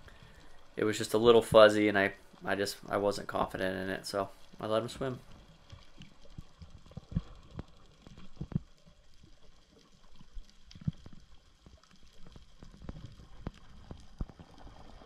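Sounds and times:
low underwater rumble: 0:04.5 - 0:15.0.

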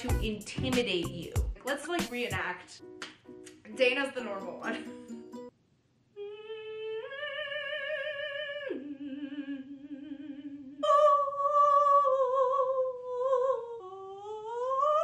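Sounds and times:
woman singing operatic vibrato: 0:06.2 - 0:15.0.

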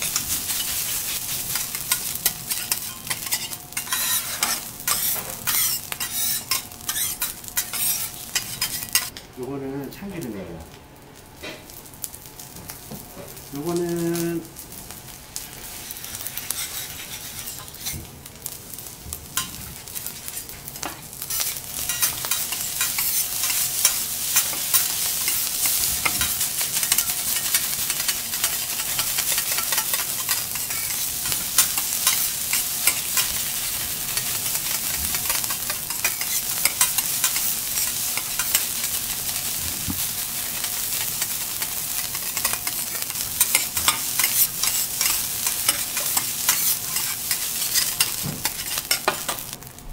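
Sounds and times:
metal spatulas scraping and clicking: 0:00.0 - 0:09.1, 0:15.8 - 0:18.0, 0:21.3 - 0:33.4, 0:34.1 - 0:38.9, 0:40.5 - 0:49.4
rice sizzling on a griddle: 0:00.0 - 0:49.9.

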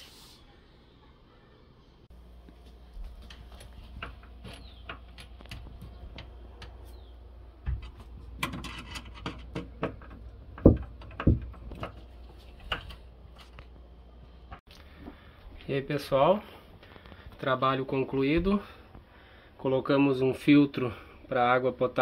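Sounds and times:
low steady hum: 0:00.2 - 0:19.6
clicks and taps of hose fittings: 0:03.2 - 0:06.8.

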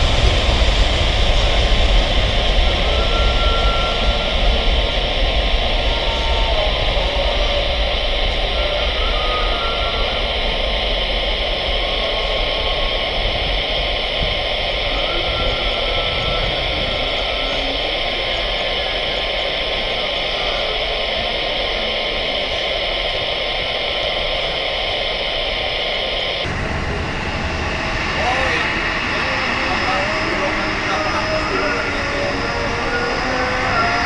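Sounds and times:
distant jet engines roaring: 0:00.0 - 0:34.0.

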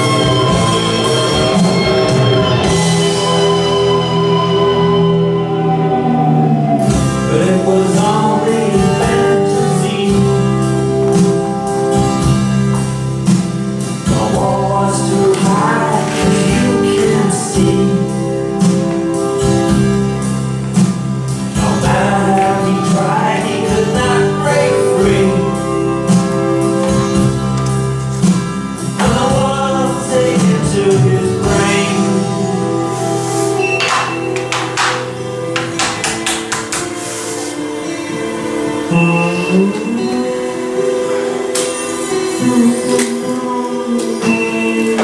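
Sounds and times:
steady musical accompaniment: 0:00.0 - 0:45.0
gospel choir singing: 0:14.1 - 0:18.4, 0:21.6 - 0:26.5, 0:42.1 - 0:45.0.

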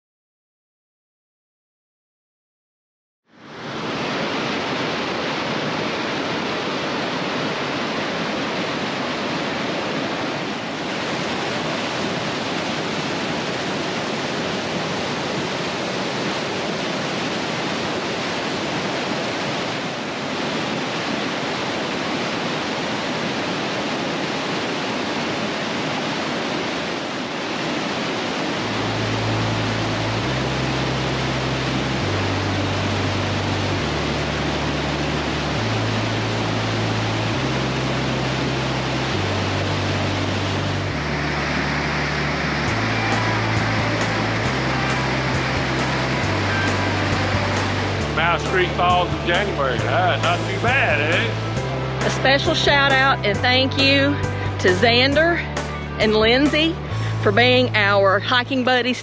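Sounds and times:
creek and waterfall rushing: 0:03.4 - 0:59.0
low rumble: 0:28.6 - 0:58.6.

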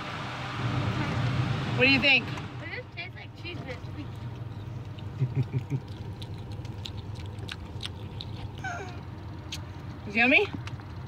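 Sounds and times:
steady low hum in car: 0:00.0 - 0:11.0
chewing mouth clicks: 0:04.0 - 0:09.7.

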